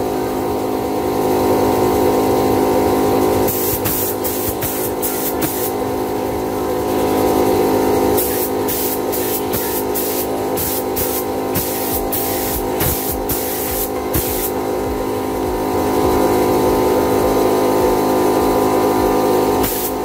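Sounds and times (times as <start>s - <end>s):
spray gun hissing: 3.4s - 6.0s, 6.6s - 20.0s
electronic music: 3.8s - 20.0s.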